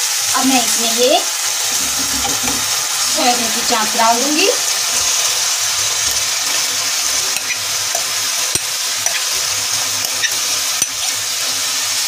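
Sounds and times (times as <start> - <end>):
sauce sizzling in a pan: 0.0 - 12.0
spoon scraping a glass bowl: 7.3 - 11.2
spoon clicking against bowl: 7.4 - 11.1.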